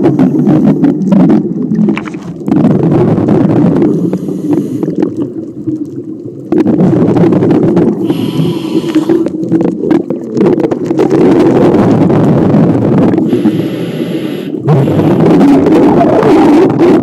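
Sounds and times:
exhaled bubbles rumbling underwater: 0:00.0 - 0:17.0
regulator hissing inhale: 0:04.1 - 0:05.0, 0:08.0 - 0:09.3, 0:13.3 - 0:15.2.

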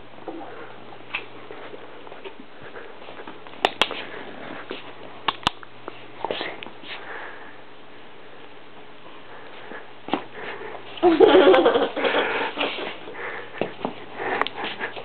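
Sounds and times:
sharp clicks: 0:05.3 - 0:05.7.

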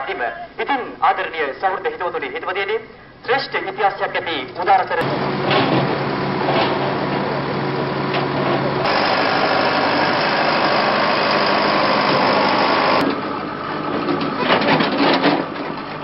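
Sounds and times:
vehicle engine humming: 0:05.0 - 0:16.0
wash of noise: 0:08.9 - 0:13.0.

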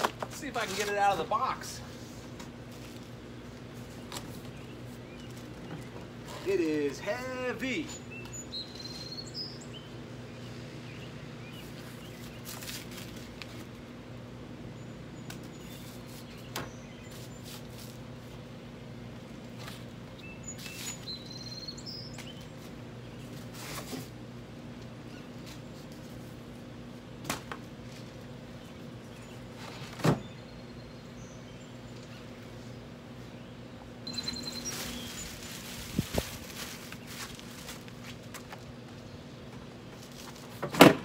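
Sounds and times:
steady low hum: 0:00.0 - 0:40.6
handling knocks and rustles: 0:34.1 - 0:41.0.

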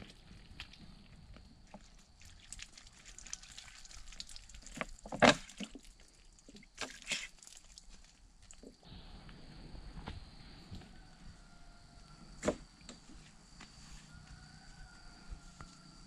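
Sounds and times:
water trickling over hands: 0:00.0 - 0:08.8.

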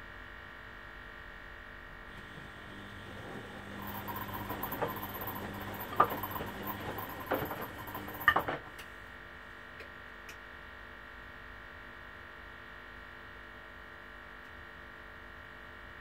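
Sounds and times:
washing machine drum tumbling: 0:02.1 - 0:08.8
faint steady hum: 0:02.1 - 0:08.9.

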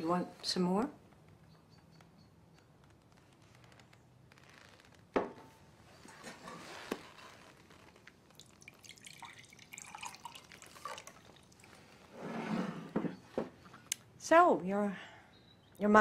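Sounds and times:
faint dripping and splashing: 0:07.4 - 0:12.2
drink pouring from a pitcher: 0:08.3 - 0:12.2.

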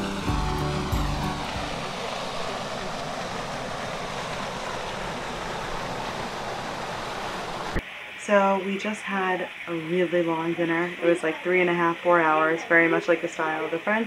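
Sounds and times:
background music: 0:00.0 - 0:01.9
steady rushing noise: 0:00.0 - 0:07.8.

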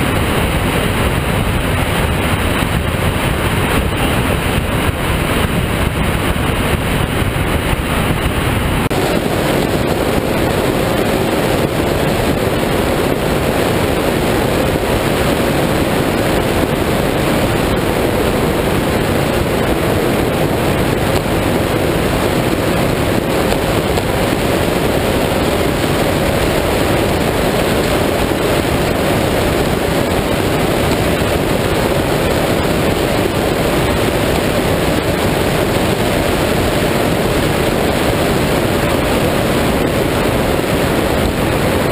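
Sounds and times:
faint engine drone: 0:00.0 - 0:41.9
water noise from speeding boat: 0:00.0 - 0:41.9
wind rushing on microphone: 0:00.0 - 0:41.9.

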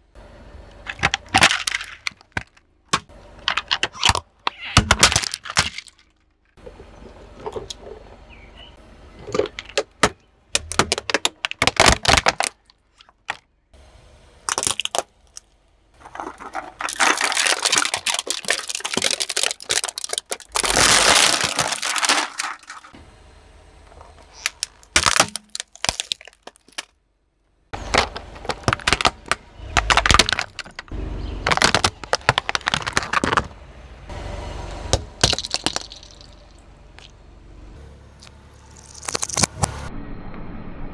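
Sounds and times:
tyre crushing plastic and cans: 0:00.8 - 0:06.3, 0:09.1 - 0:13.5, 0:14.5 - 0:15.4, 0:16.0 - 0:23.0, 0:23.8 - 0:27.0, 0:27.8 - 0:33.6, 0:35.0 - 0:36.4.

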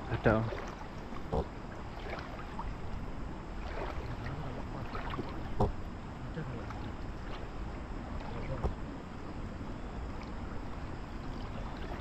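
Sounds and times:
water splashing in river: 0:00.1 - 0:02.9, 0:03.6 - 0:05.8, 0:10.1 - 0:12.0
small knocks: 0:05.5 - 0:05.8.

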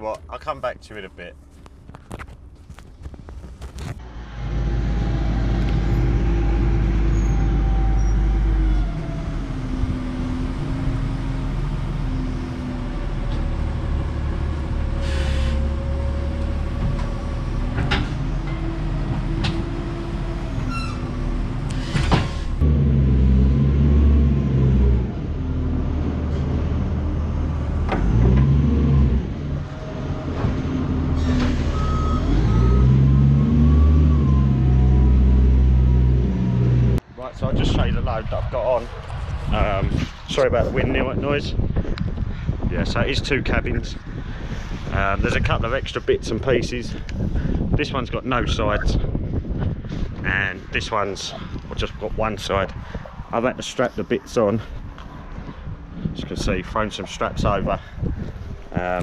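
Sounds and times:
lorry diesel engine revving: 0:04.0 - 0:37.0.

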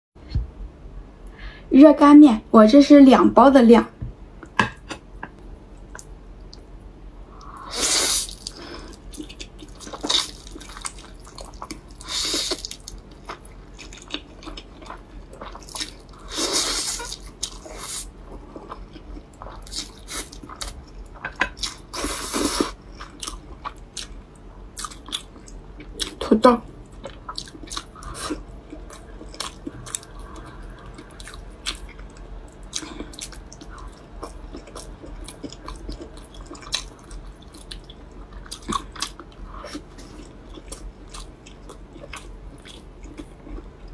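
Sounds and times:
chewing and mouth clicks: 0:08.3 - 0:16.1, 0:26.8 - 0:43.9.

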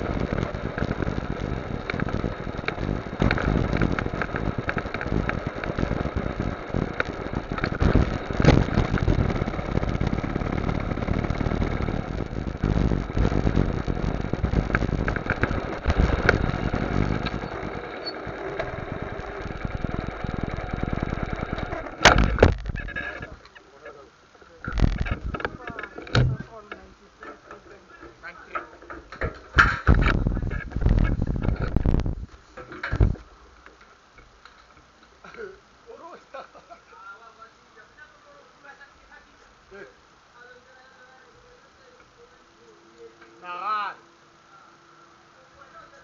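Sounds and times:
motorcycle engine running: 0:00.0 - 0:23.3
road and wind rumble: 0:00.0 - 0:23.4, 0:24.6 - 0:26.5, 0:29.4 - 0:33.4.

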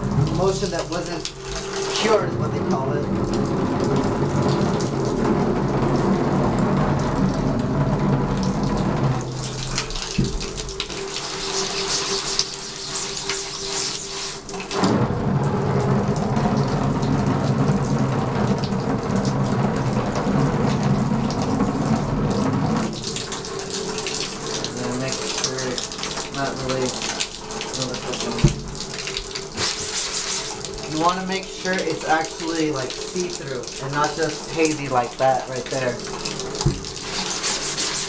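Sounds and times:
shower spraying water: 0:00.0 - 0:38.0.

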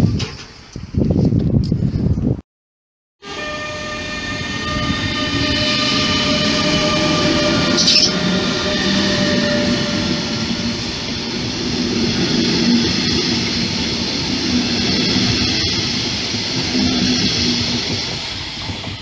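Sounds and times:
electric locomotive hum: 0:03.2 - 0:19.0
train wheel rumble: 0:03.2 - 0:19.0
brief high squeal: 0:06.8 - 0:10.0.

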